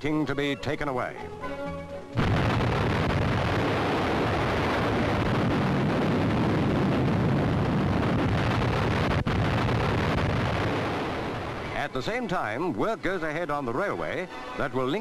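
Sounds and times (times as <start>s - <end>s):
rock blasting rumbling roar: 2.2s - 11.8s.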